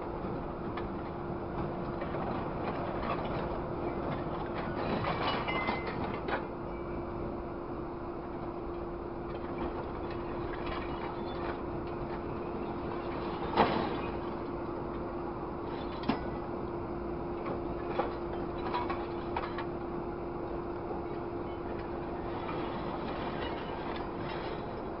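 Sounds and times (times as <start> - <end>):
grapple clanking on scrap metal: 4.5 - 6.4, 13.2 - 14.4, 22.3 - 24.7.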